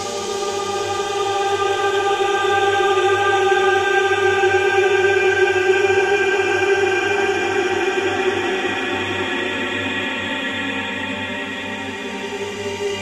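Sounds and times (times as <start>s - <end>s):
slow ambient music chord: 0.0s - 6.0s.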